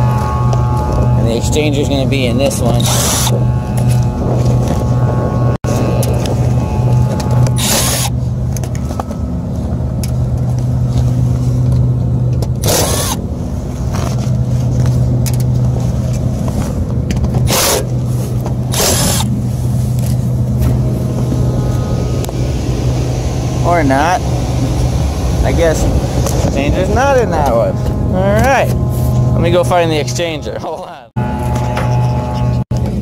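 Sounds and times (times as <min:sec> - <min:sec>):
heating unit low hum: 0:00.0 - 0:33.0.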